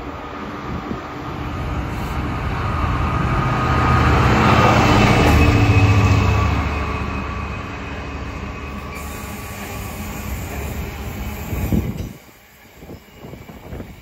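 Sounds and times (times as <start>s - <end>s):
diesel locomotive engine drone: 0.0s - 14.0s
train wheels rumbling on rail: 0.0s - 14.0s.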